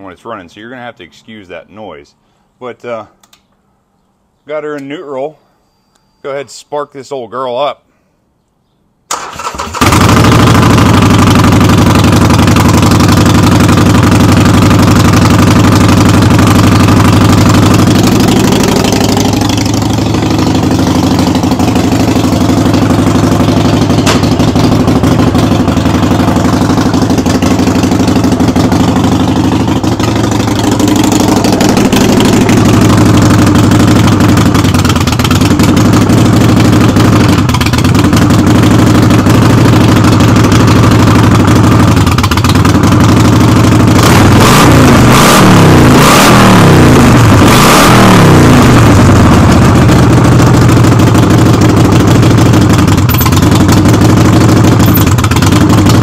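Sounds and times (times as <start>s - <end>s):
motorcycle engine idling with rattle: 9.1s - 56.0s.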